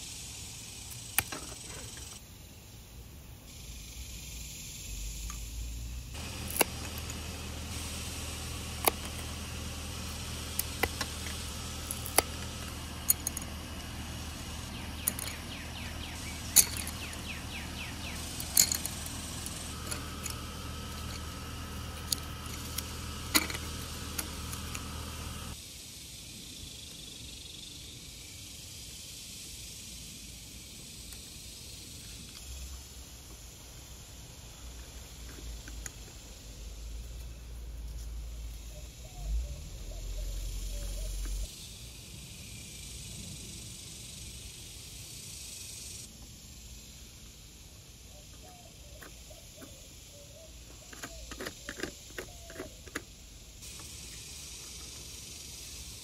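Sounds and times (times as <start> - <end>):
steady low hum: 0.0 - 25.6
wooden dowels clicking and knocking: 50.7 - 53.1.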